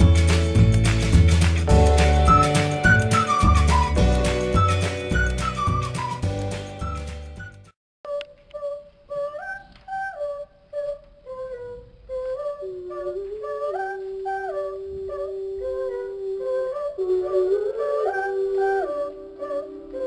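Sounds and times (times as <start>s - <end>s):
instrumental music: 0.0s - 9.9s
voices singing a cappella: 8.1s - 20.0s.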